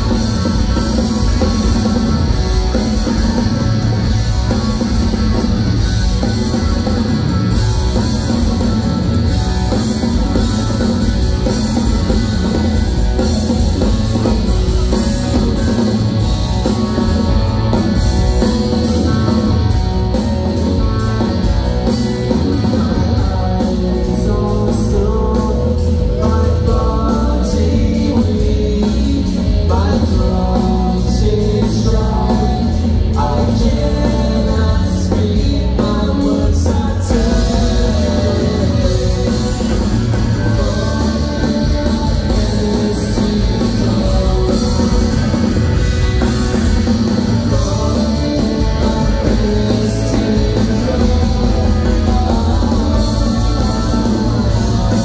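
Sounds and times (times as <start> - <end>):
distorted electric guitars: 0.0 - 55.0
rock band playing live: 0.0 - 55.0
person singing: 22.2 - 45.7, 47.0 - 55.0.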